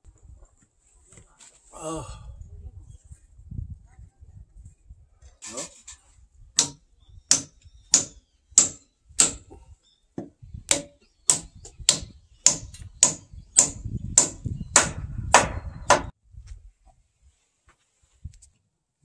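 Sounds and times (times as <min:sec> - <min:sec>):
hammer striking wood: 0:06.6 - 0:09.5, 0:10.2 - 0:16.1.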